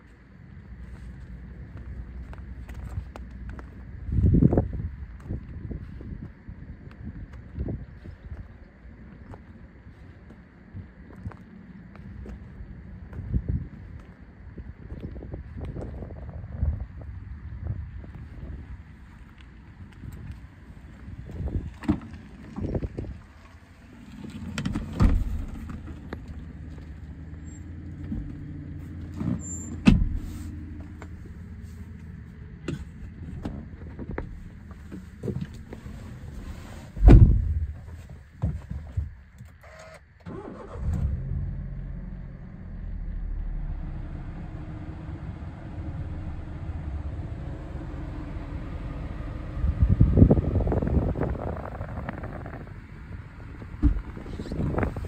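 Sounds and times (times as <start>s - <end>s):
small car engine idling: 16.0s - 36.6s, 40.3s - 55.0s.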